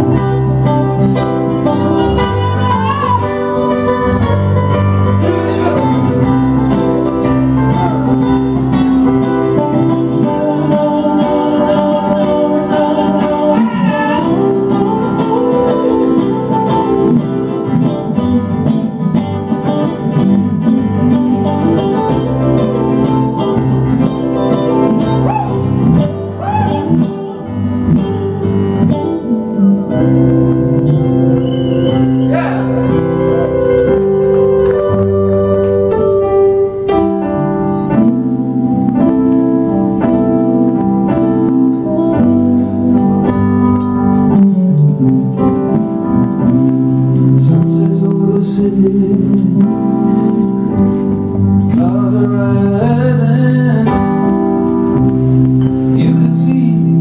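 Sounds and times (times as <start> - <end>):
electric guitar: 0.0 - 57.0
keyboard playing: 0.0 - 57.0
man singing: 1.8 - 4.0, 5.1 - 6.4, 9.7 - 16.8, 32.2 - 32.9, 47.1 - 51.0, 51.6 - 54.4, 55.8 - 57.0.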